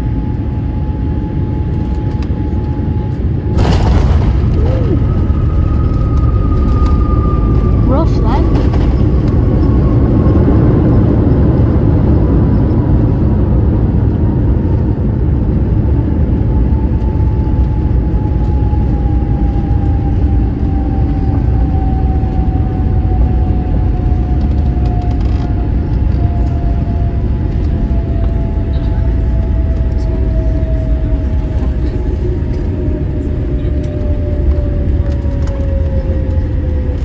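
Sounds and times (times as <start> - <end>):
jet engines and wheels rumbling: 0.0 - 37.0.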